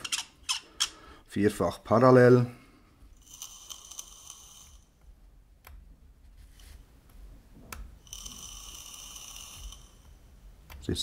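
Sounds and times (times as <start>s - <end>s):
faint coil sizzle: 3.1s - 5.0s, 8.0s - 11.0s.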